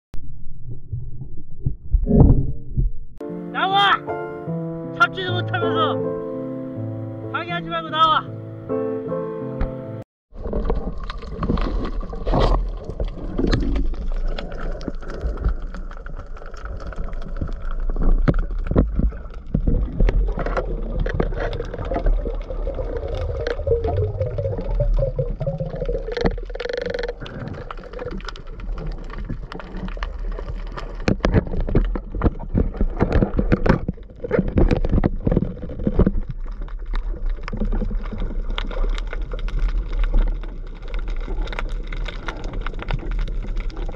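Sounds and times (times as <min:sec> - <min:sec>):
underwater rumble of moving water: 0:00.1 - 0:03.2, 0:10.3 - 0:43.9
underwater clicks and knocks: 0:10.4 - 0:43.9.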